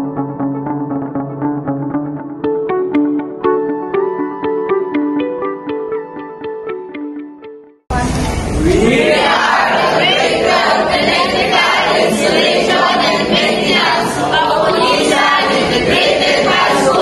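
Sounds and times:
children singing in chorus: 8.7s - 17.0s.

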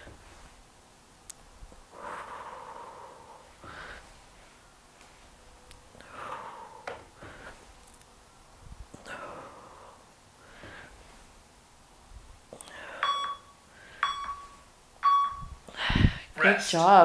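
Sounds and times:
woman breathing hard: 1.9s - 4.7s, 5.9s - 7.7s, 8.9s - 11.2s, 12.6s - 14.2s, 15.6s - 16.4s
interval timer beep: 13.0s - 15.6s.

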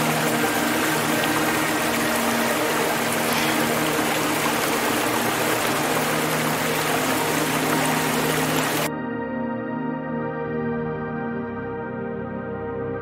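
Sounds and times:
stream rushing over stones: 0.0s - 8.9s
ambient music tones: 0.0s - 13.0s.

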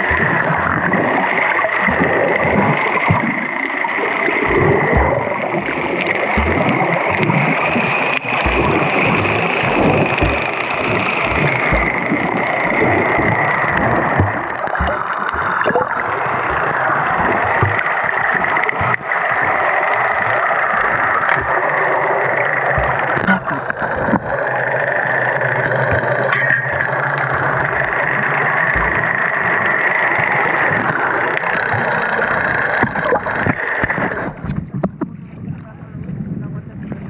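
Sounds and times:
muffled underwater rushing water: 0.0s - 37.0s
low thumps: 4.4s - 31.0s.

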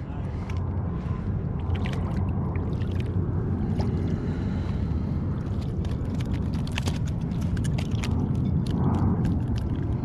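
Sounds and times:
wind rumble on microphone: 0.0s - 10.0s
fish splashing in water: 5.5s - 10.0s.

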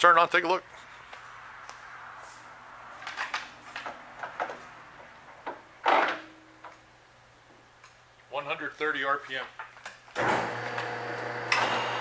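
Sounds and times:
lathe clunk: 10.2s - 12.0s.

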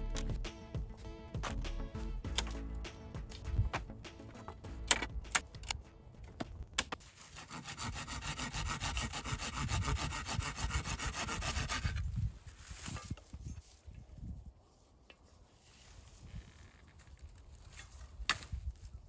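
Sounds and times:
rods clicking and knocking: 0.0s - 7.0s
saw rasping through wood: 7.2s - 12.0s.

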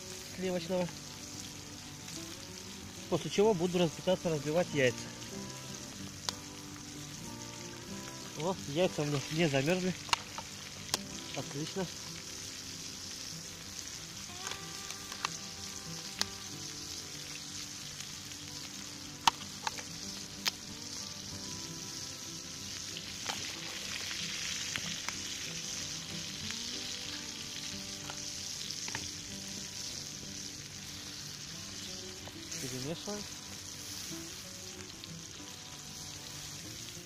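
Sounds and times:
food sizzling in a pan: 0.0s - 37.0s.

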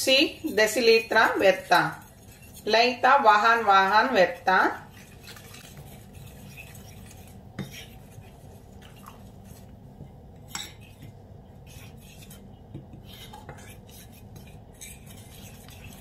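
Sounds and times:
whisk clinking against bowl: 0.0s - 7.9s
whisk scraping bowl: 0.0s - 16.0s.

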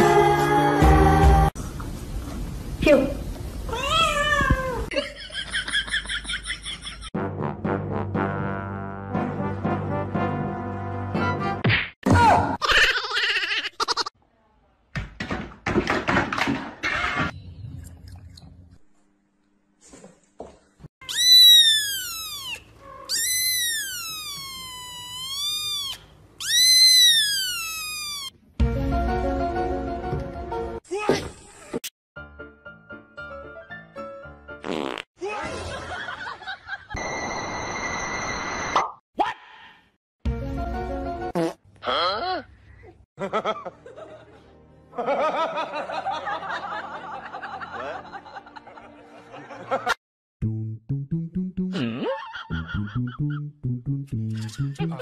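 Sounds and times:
kitten meowing: 21.0s - 28.3s
people laughing: 35.2s - 37.0s, 43.2s - 50.0s, 52.0s - 53.4s.

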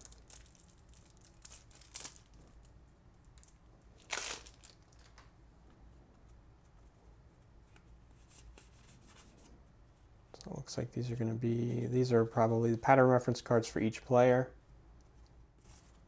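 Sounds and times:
plastic wrap tearing: 0.0s - 2.7s, 3.4s - 5.2s
faint plastic crinkling: 0.0s - 5.4s.

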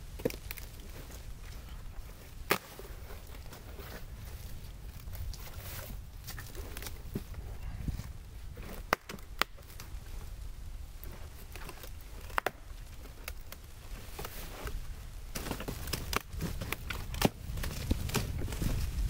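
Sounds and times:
bark cracking: 11.4s - 13.6s.

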